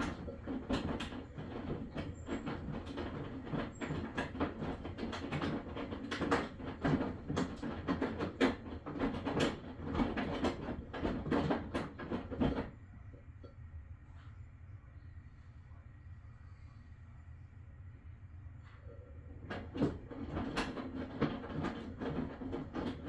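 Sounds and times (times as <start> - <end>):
washing machine clattering: 0.0 - 13.4, 18.6 - 23.0.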